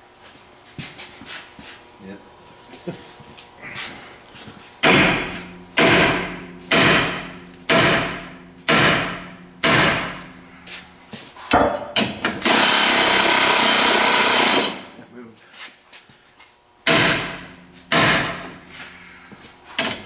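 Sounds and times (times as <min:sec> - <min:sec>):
power tool running: 0:12.0 - 0:15.0.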